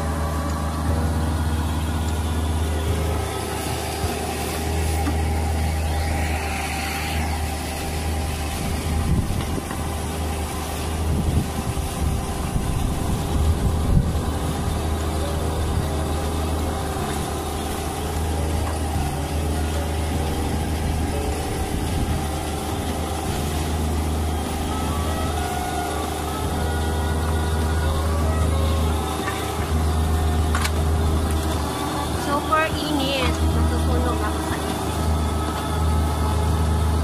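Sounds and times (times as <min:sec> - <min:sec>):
tractor diesel engine running: 0:00.0 - 0:37.0.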